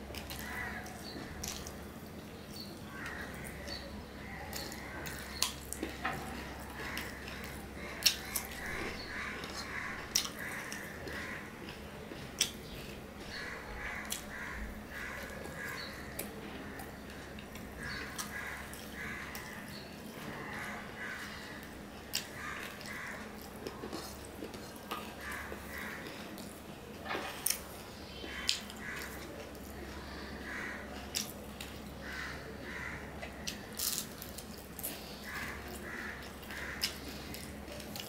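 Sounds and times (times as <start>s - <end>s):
man chewing food: 0.0s - 38.0s.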